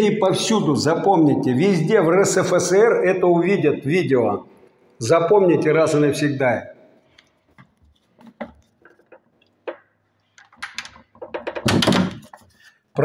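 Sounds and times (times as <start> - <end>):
door lock clicks and knocks: 10.5 - 12.3.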